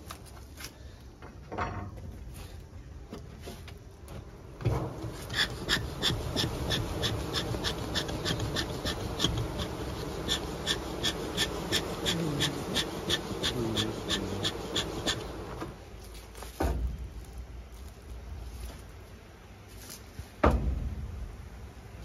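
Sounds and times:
low rumbling hum: 4.0 - 22.0
squeaky smoker bellows puffing: 4.7 - 15.8.

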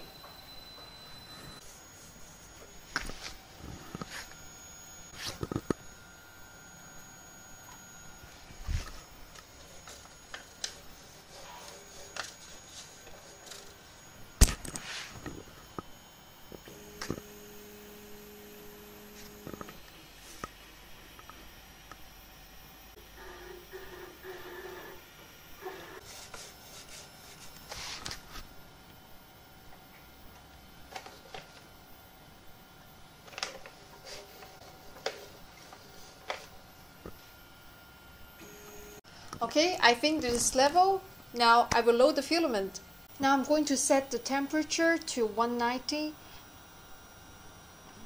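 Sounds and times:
printer motor whine: 0.0 - 48.0.

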